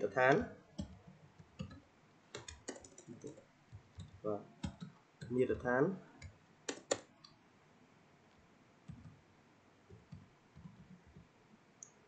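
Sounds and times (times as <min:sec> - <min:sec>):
keyboard keys clicking: 0:00.3 - 0:01.8, 0:02.4 - 0:04.9, 0:06.7 - 0:07.0.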